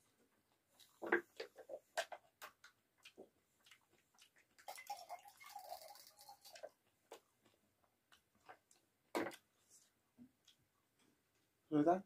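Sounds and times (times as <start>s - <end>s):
chewing mouth sounds: 3.0s - 4.8s.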